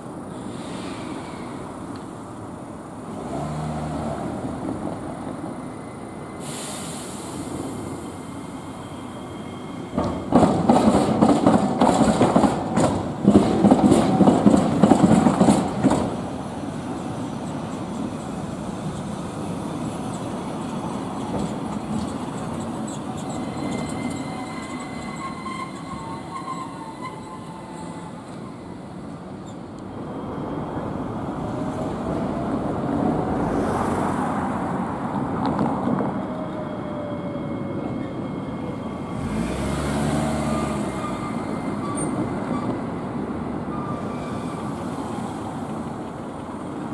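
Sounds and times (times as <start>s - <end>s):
tram rolling and motor hum: 7.3s - 46.9s
tram wheels clacking over rails: 9.4s - 30.0s.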